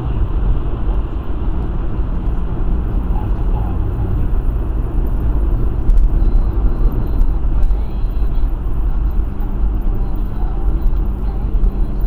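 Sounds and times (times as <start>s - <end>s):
car driving on wet road: 0.0s - 12.0s.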